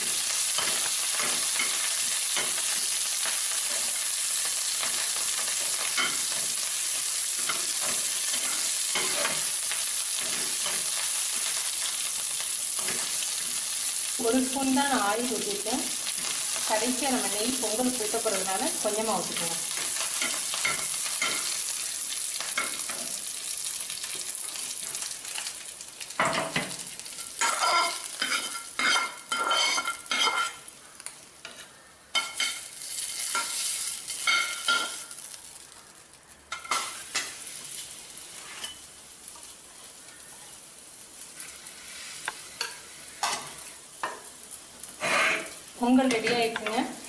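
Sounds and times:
spices sizzling in a frying pan: 0:00.0 - 0:47.0
spatula scraping a pan: 0:00.3 - 0:13.7, 0:27.4 - 0:30.6, 0:38.3 - 0:38.9, 0:44.8 - 0:46.8.

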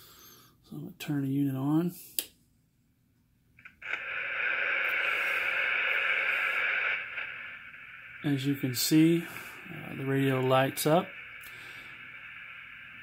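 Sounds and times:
radio static hissing: 0:03.6 - 0:13.0.

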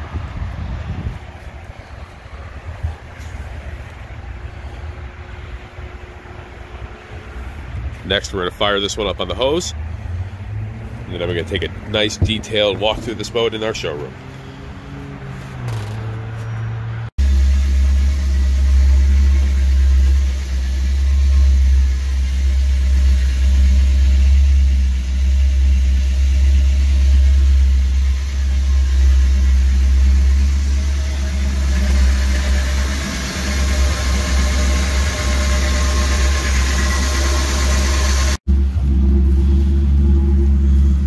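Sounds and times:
boat engine idling: 0:17.2 - 0:41.0.

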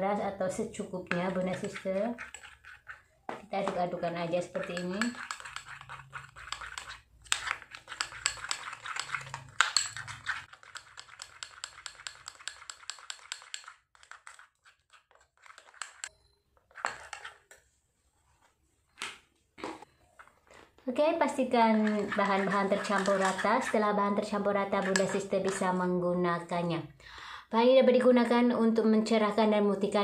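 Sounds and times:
metal spoon stirring in glass bowl: 0:00.6 - 0:17.6, 0:21.3 - 0:25.8.

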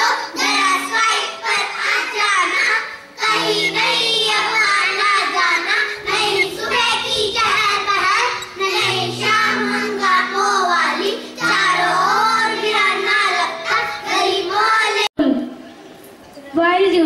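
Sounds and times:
children singing: 0:00.0 - 0:15.1
backing music low notes: 0:02.6 - 0:15.0.

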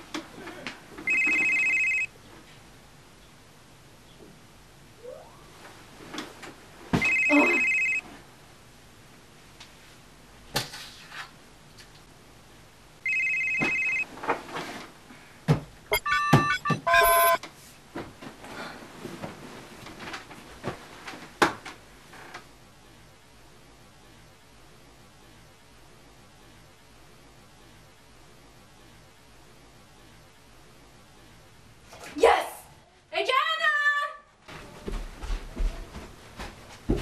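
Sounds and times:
phone alarm beeping: 0:01.1 - 0:02.1, 0:07.0 - 0:08.0, 0:13.1 - 0:14.1, 0:15.9 - 0:17.4
bedding rustling and knocks: 0:17.8 - 0:21.8, 0:34.5 - 0:37.0.

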